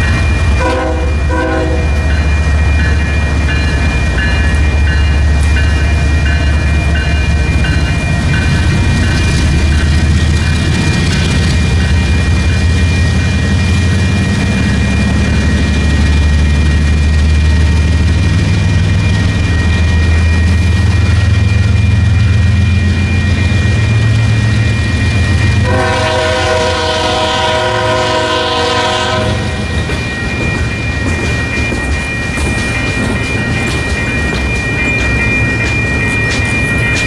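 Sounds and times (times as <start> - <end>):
high ringing tone: 0.0 - 37.0
train wheels rumbling on rail: 0.0 - 37.0
train air horn: 0.6 - 1.9, 25.6 - 29.6.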